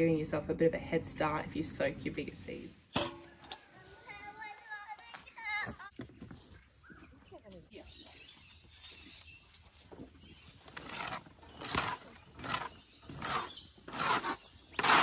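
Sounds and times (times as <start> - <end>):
rake scraping straw on dirt: 10.5 - 15.0.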